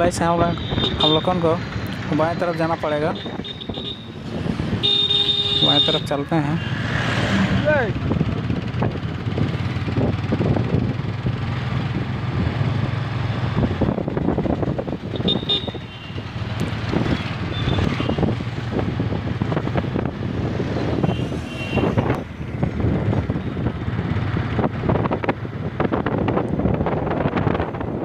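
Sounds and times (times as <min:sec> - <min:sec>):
town traffic: 0:00.0 - 0:28.0
motorcycle engine cruising: 0:06.6 - 0:28.0.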